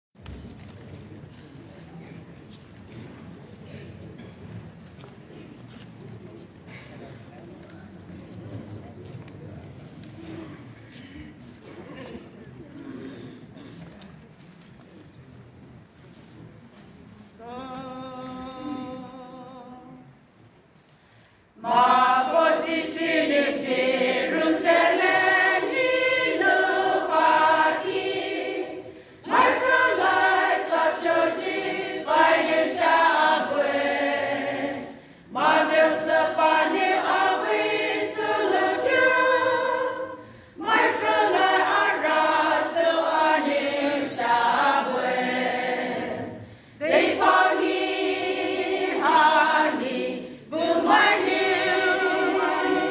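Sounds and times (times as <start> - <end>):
women's choir singing unaccompanied: 21.6 - 52.9.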